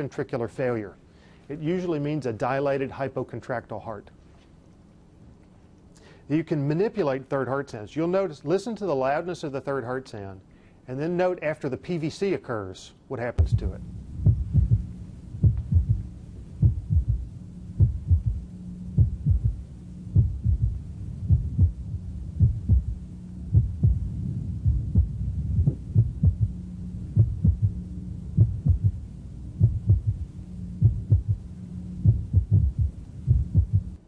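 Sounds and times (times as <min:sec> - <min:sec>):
heartbeat thuds: 0:13.4 - 0:27.8, 0:28.4 - 0:34.0.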